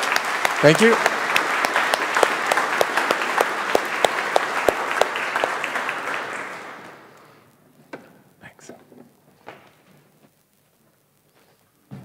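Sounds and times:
audience applauding: 0.0s - 7.5s.

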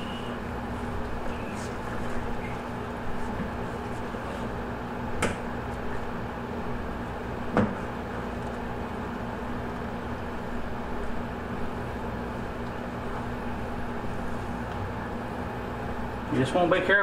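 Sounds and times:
background hum: 0.0s - 17.0s
knocks on steel worktable: 7.5s - 7.8s.

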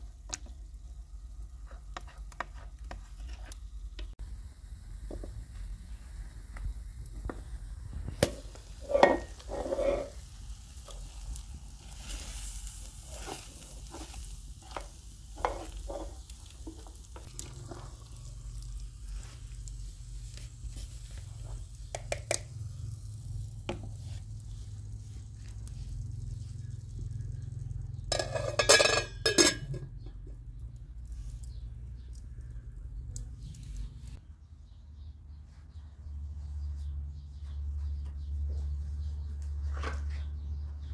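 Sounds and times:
food sizzling: 0.0s - 29.8s
spoon scraping metal pan: 8.8s - 10.2s, 13.1s - 16.2s, 28.1s - 29.9s
metal lid clattering: 28.1s - 30.0s.

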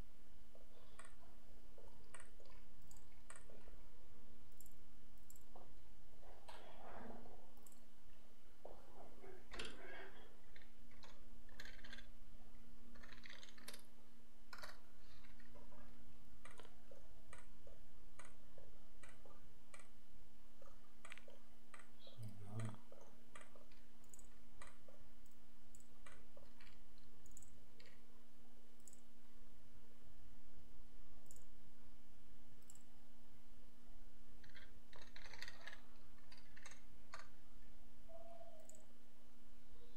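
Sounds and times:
mouse and keyboard clicks: 0.7s - 1.2s, 2.0s - 3.7s, 9.5s - 12.2s, 12.9s - 13.9s, 14.5s - 18.4s, 19.0s - 20.0s, 20.6s - 28.0s, 28.8s - 29.1s, 31.2s - 31.5s, 34.4s - 37.4s.

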